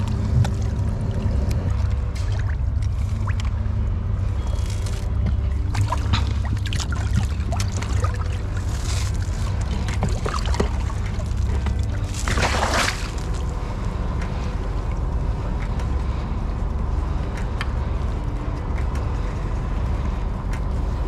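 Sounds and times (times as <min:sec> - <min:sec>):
low rumble: 0:00.0 - 0:21.0
water lapping against pilings: 0:00.0 - 0:21.0
water splash: 0:05.7 - 0:13.3.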